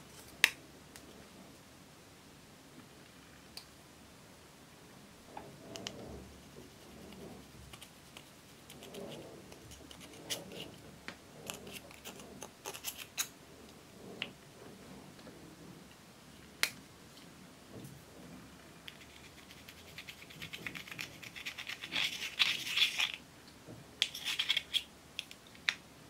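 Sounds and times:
scissors scraping eyeshadow: 9.5 - 10.6, 11.4 - 13.3, 18.9 - 23.2, 24.0 - 24.8.

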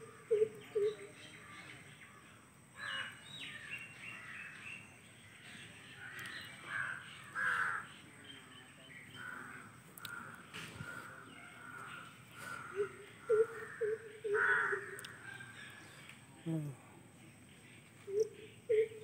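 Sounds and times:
birds making harsh calls: 6.0 - 8.1, 9.0 - 16.1.

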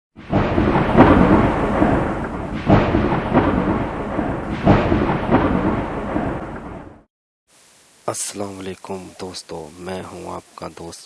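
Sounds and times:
loud rumbling thunder-like effect: 0.2 - 7.1.

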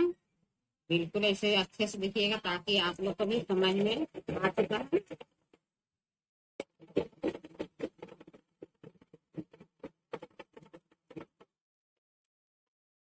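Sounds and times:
sewing machine stitching: 6.6 - 11.4.

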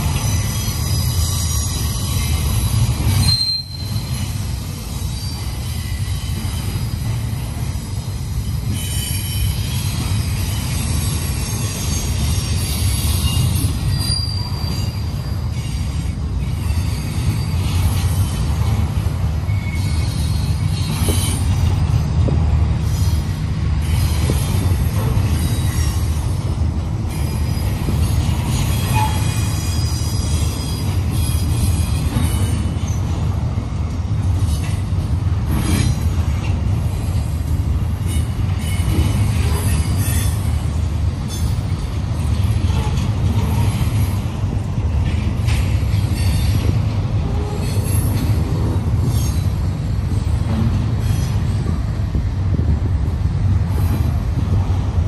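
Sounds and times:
knocks and clanks from railcars: 0.0 - 55.0
train wheels rumbling on rail: 0.0 - 55.0
high-pitched wheel squeal: 0.2 - 7.2, 8.7 - 18.5, 19.4 - 21.6, 27.1 - 33.1.

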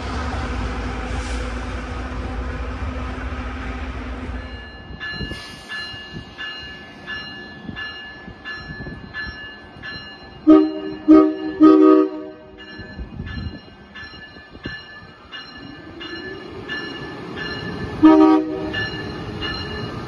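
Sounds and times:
train rumbling: 0.0 - 20.0
warning bell ringing: 4.4 - 20.0.

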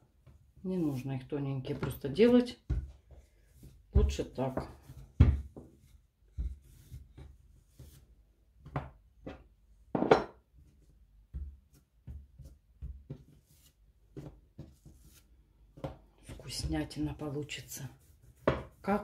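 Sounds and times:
rolling pin rubbing dough: 2.7 - 8.2.

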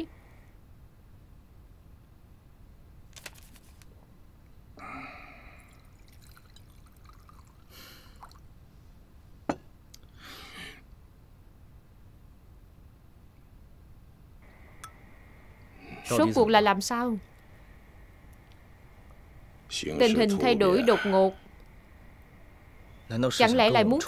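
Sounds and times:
soft breath: 4.8 - 6.0, 7.7 - 9.0, 10.1 - 10.8
liquid being poured: 5.6 - 8.5.

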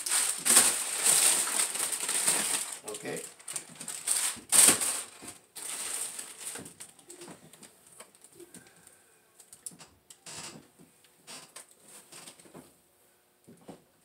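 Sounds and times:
plastic wrapping crinkling: 0.0 - 8.4.

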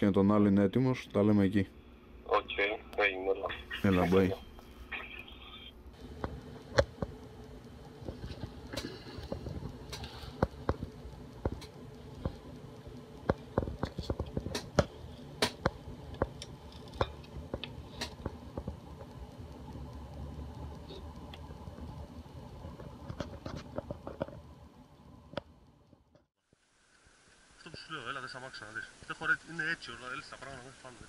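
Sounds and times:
low steady hum: 0.0 - 31.0
sharp clicks and taps: 6.2 - 19.2.

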